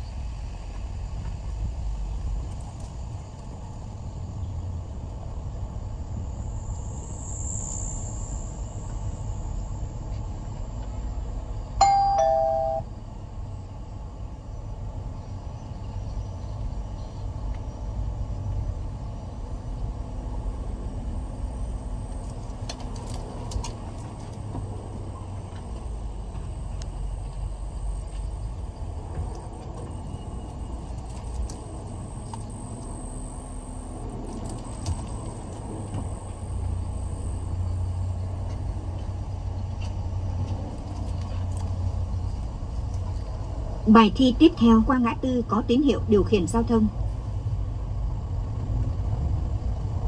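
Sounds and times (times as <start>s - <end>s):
car engine and road rumble: 0.0s - 50.0s
electronic two-tone chime: 11.8s - 12.8s.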